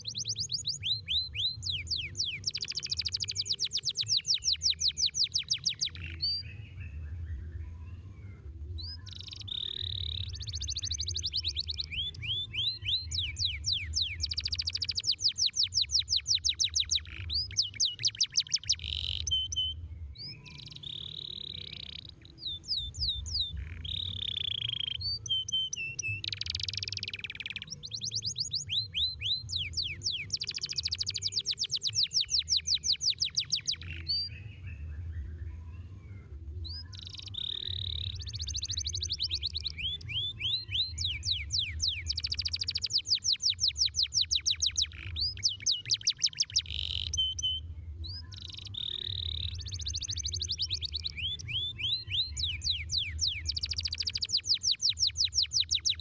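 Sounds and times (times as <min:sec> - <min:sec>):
canary singing trills: 0:00.0 - 0:08.0, 0:08.7 - 0:35.7, 0:36.6 - 0:56.0.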